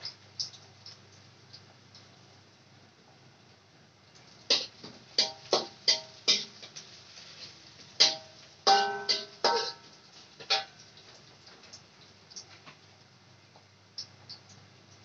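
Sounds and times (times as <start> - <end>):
metal spatula clanking on wok: 4.5 - 6.8, 8.0 - 10.8.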